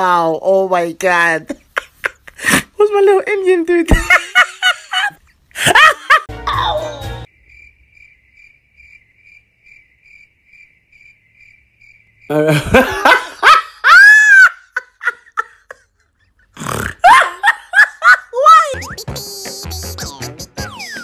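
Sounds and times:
cricket chirping sound effect: 0:07.3 - 0:12.5
vocal sounds rising and falling: 0:18.5 - 0:21.0.

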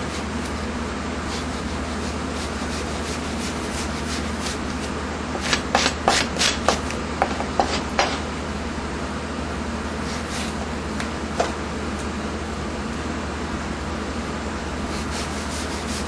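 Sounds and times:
steady low hum: 0:00.0 - 0:16.0
knife scraping fish skin: 0:01.3 - 0:04.8, 0:05.4 - 0:06.8.

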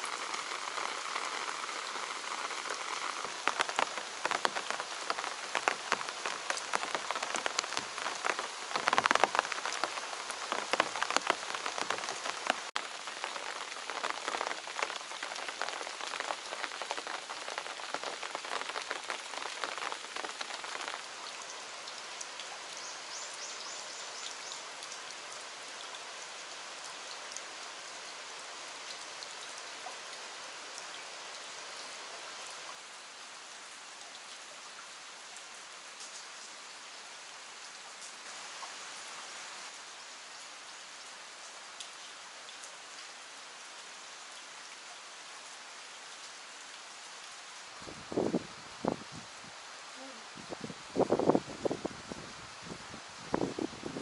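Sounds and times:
heavy raindrops pattering: 0:00.0 - 0:25.2
steady rain: 0:00.0 - 0:54.0.

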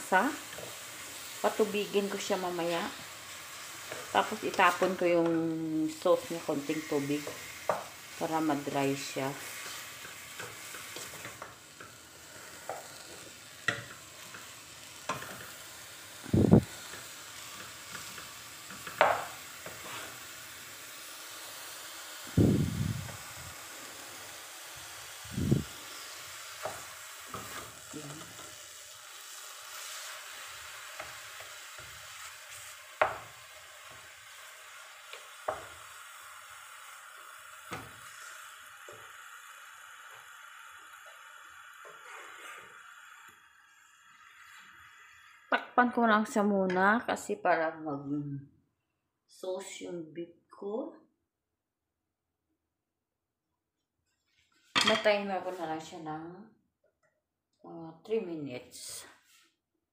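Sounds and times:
meat sizzling faintly in a pot: 0:00.0 - 0:47.2
wooden spoon scraping a metal pot: 0:17.9 - 0:20.2, 0:41.9 - 0:42.8.

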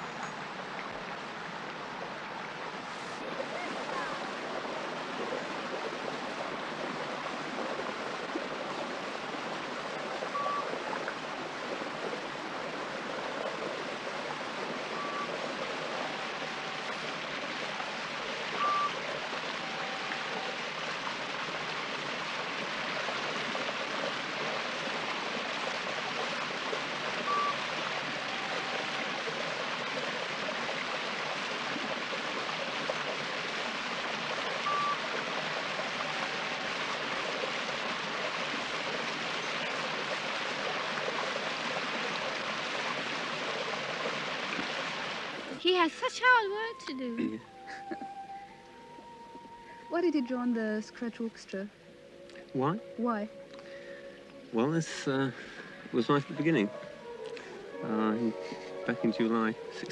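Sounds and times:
stream water rushing over stones: 0:00.0 - 0:47.6, 0:52.5 - 0:59.9
two-note high tone: 0:10.4 - 0:10.7, 0:15.0 - 0:20.8, 0:27.2 - 0:29.4, 0:34.5 - 0:37.3, 0:45.6 - 0:59.9.

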